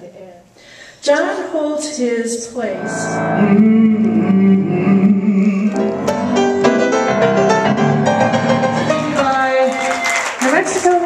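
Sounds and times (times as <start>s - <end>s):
jazz piano: 2.8s - 9.3s.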